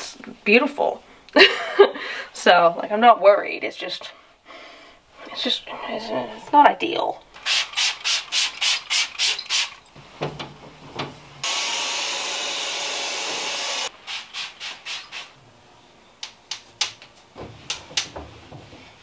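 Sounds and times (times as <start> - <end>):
spray bottle hissing: 7.4 - 9.8, 14.0 - 15.4
cordless vacuum whining: 11.4 - 13.9.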